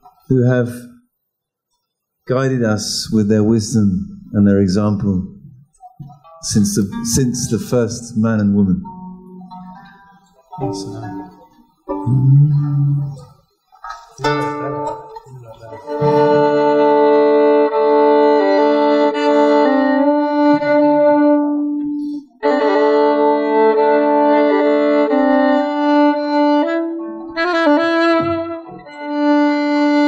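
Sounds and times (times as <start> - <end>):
plucked strings: 6.0 - 30.0
fiddle playing long notes: 6.6 - 13.1, 14.2 - 30.0.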